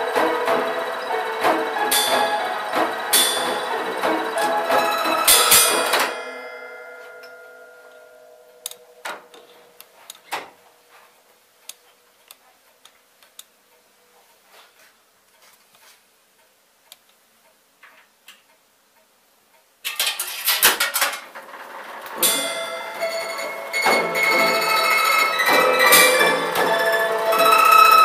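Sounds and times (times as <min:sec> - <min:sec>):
orchestrion music: 0:00.0 - 0:06.2, 0:22.2 - 0:28.0
orchestrion percussion strikes: 0:00.0 - 0:06.4, 0:22.2 - 0:28.0.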